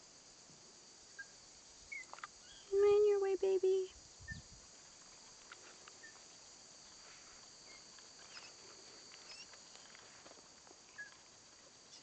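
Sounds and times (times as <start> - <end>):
high insect chorus: 0.0 - 12.0
rustles in dry leaves: 4.6 - 12.0.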